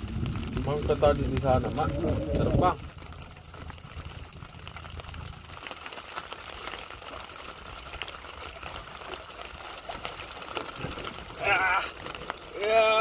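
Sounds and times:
low rumble: 0:00.0 - 0:08.6
drizzle pattering: 0:00.0 - 0:13.0.

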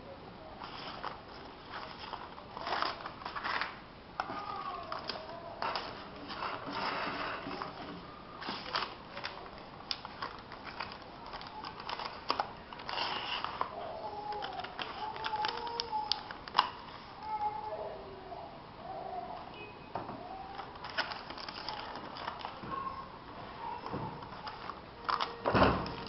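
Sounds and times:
paper rustling: 0:00.6 - 0:17.1, 0:20.6 - 0:26.0.

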